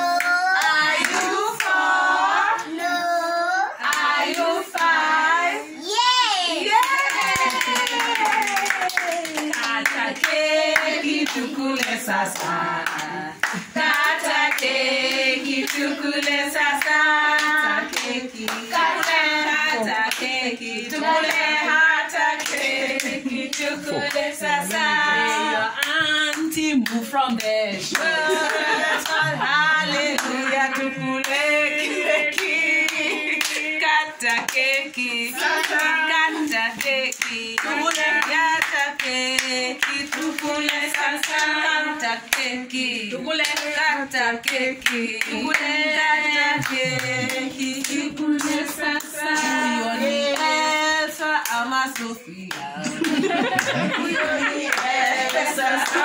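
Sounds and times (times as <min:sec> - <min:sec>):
group of people singing together: 0:00.0 - 0:05.8, 0:06.6 - 0:56.0
hand clapping: 0:06.8 - 0:19.2, 0:32.4 - 0:41.6, 0:46.5 - 0:49.7, 0:51.4 - 0:53.9, 0:54.7 - 0:56.0.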